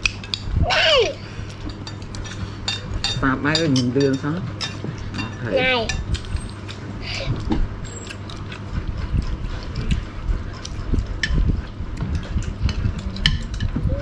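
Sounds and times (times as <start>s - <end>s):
low steady hum: 0.0s - 14.0s
spoons clinking on ceramic plates: 1.7s - 6.8s.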